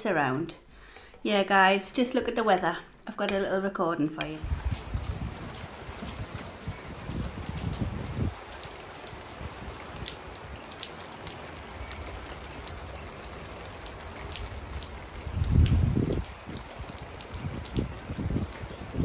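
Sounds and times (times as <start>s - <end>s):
heavy rain on wooden deck: 4.4s - 19.0s.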